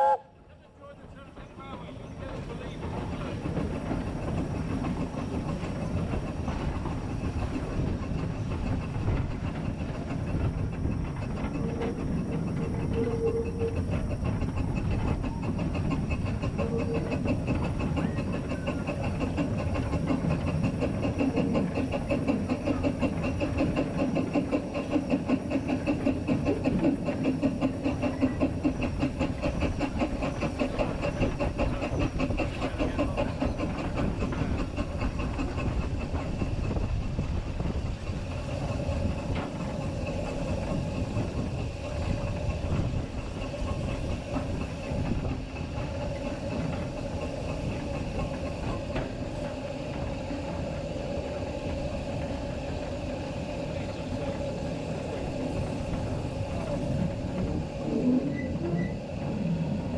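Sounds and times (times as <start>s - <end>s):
steam locomotive exhaust beats: 0.0s - 59.9s
wheels clattering on track: 0.6s - 59.9s
steam hissing: 1.8s - 59.9s.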